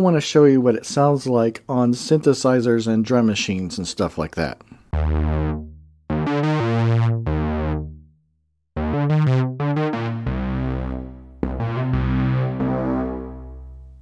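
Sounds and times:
deep synthesizer notes: 4.9s - 8.2s, 8.8s - 14.0s.

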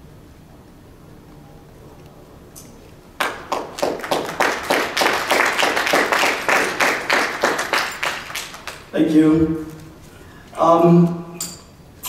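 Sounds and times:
audience clapping: 3.2s - 9.0s.

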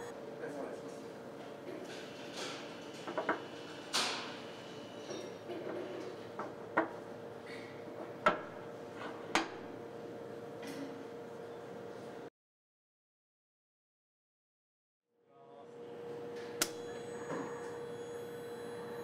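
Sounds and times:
faint hum: 15.2s - 19.0s.

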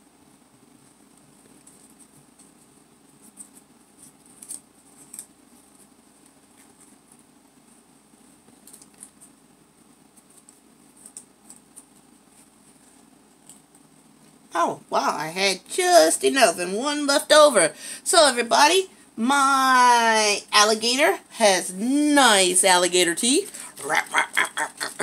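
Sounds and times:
low room hum: 0.0s - 25.0s
paper rustling and crinkling: 8.3s - 9.4s.

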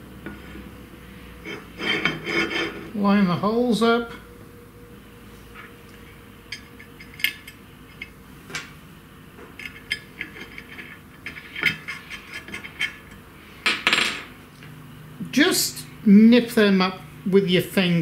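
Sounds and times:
rubbing scrape: 1.6s - 3.0s.

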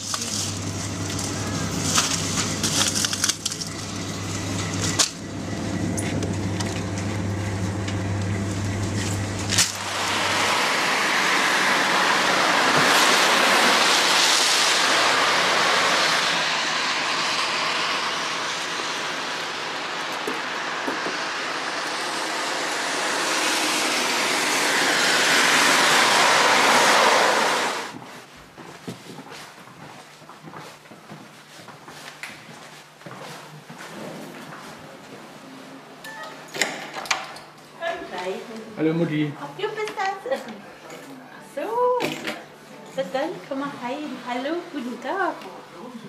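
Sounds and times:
car passing on road: 8.1s - 28.0s.

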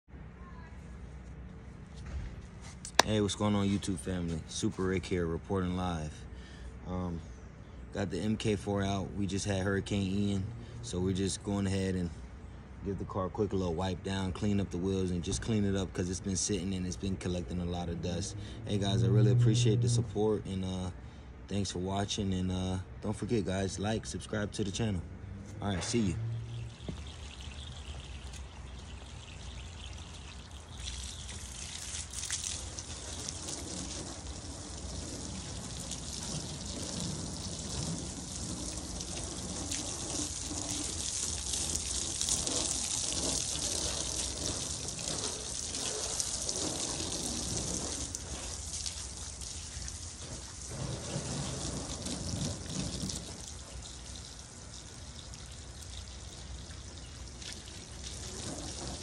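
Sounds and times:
water spraying on car: 14.1s - 20.2s, 25.6s - 59.0s.

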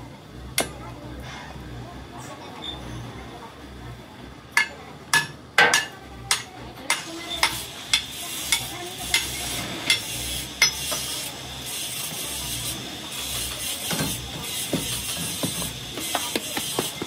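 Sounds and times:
hammer striking steel: 4.6s - 11.0s.

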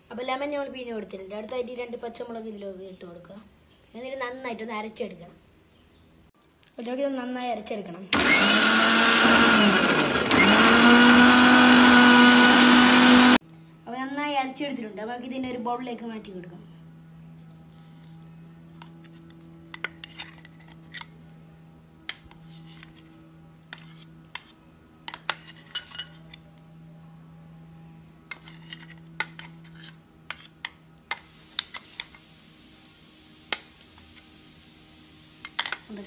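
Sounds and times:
low steady hum: 13.4s - 36.0s
spoon scraping metal jar: 28.3s - 30.8s
steady hiss: 31.1s - 36.0s.

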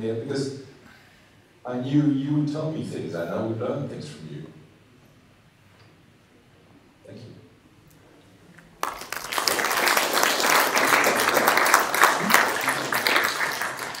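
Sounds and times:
audience applauding: 8.8s - 14.0s.

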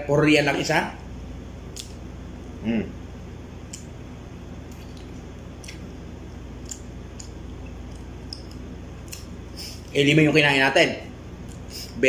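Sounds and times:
low room hum: 0.0s - 12.0s
person chewing: 4.6s - 10.0s, 11.4s - 12.0s.

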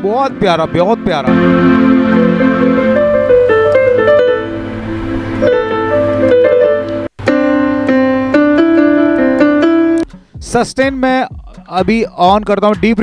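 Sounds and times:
keyboard piano melody: 0.0s - 10.2s.

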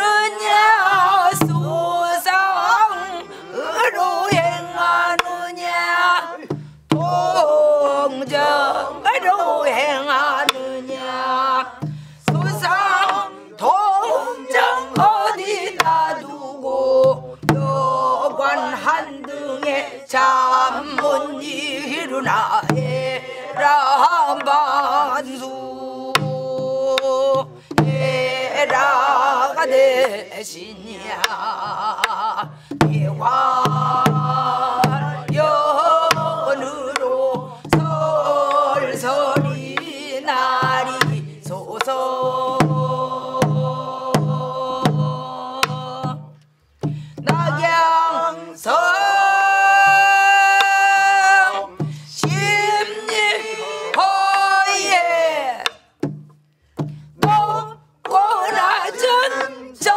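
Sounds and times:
group singing a folk song: 0.0s - 59.9s
barrel drum beating: 0.7s - 3.3s, 4.1s - 7.5s, 11.8s - 16.3s, 16.9s - 24.6s, 26.0s - 29.1s, 32.4s - 48.1s, 49.6s - 54.6s, 55.6s - 58.6s.

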